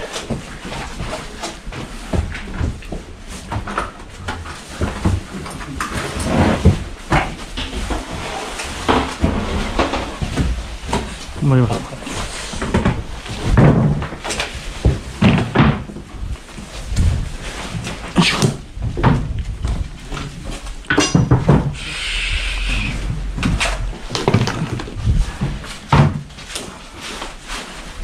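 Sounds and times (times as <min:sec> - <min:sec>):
plastic sacks rustling: 0:00.0 - 0:20.9, 0:21.7 - 0:28.0
wooden floorboards knocking: 0:08.8 - 0:21.8, 0:23.2 - 0:26.4.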